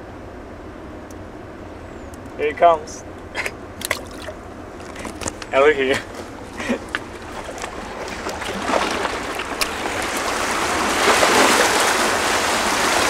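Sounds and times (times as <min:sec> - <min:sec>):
water washing against rocks: 0:03.8 - 0:13.0.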